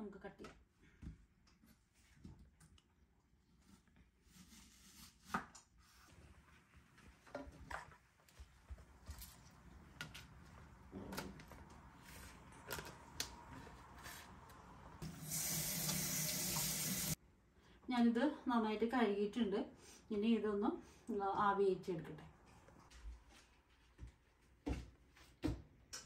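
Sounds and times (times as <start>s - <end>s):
kitchen tap running: 15.0s - 17.2s.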